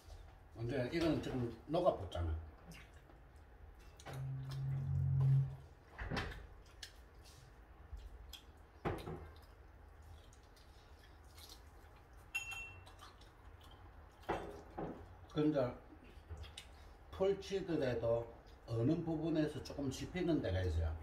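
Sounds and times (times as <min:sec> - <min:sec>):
low hum: 0:04.0 - 0:05.8
tableware clinking: 0:12.4 - 0:12.8.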